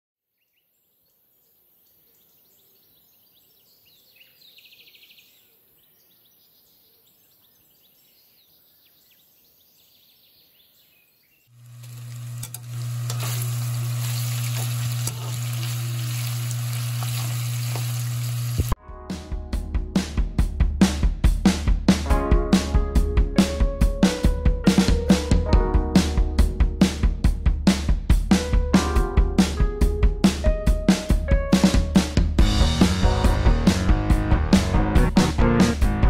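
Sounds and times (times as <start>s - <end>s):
meat sizzling in a pan: 11.6s - 18.8s.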